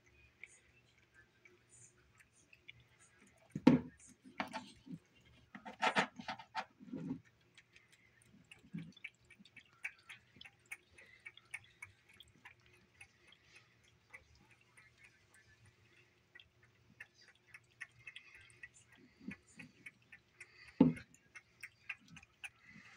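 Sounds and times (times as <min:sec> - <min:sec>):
cat eating wet mouth sounds: 0:00.0 - 0:22.9
cat eating clicks: 0:06.3 - 0:22.9.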